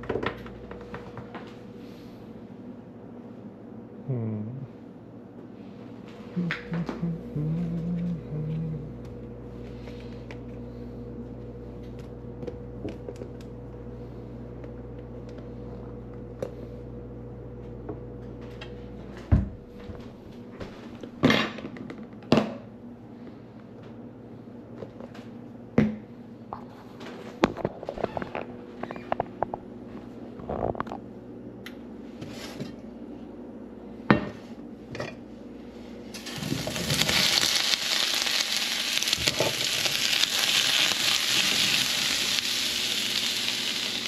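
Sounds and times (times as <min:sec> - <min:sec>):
kitchen appliance humming: 0:06.0 - 0:21.6, 0:35.0 - 0:44.0.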